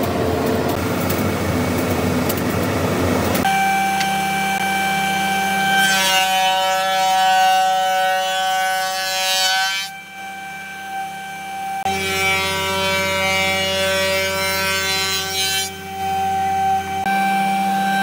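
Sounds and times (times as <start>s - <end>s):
belt sander whine: 0.0s - 18.0s.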